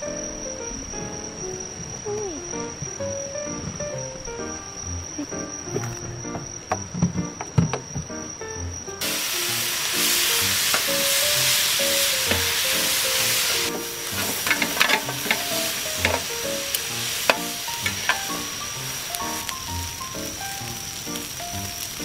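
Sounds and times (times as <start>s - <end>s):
noodles sizzling on a griddle: 8.6s - 22.0s
metal spatula scraping a plate: 14.2s - 16.2s.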